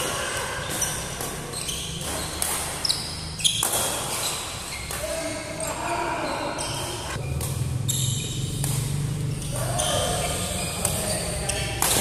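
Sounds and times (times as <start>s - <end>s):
racket striking shuttlecock: 0.0s - 5.0s, 8.5s - 11.0s, 11.7s - 12.0s
shoes squeaking on court: 0.2s - 12.0s.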